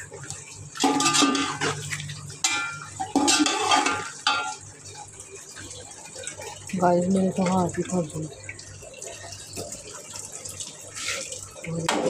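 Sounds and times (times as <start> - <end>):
spoon scraping a metal pot: 3.1 - 4.1.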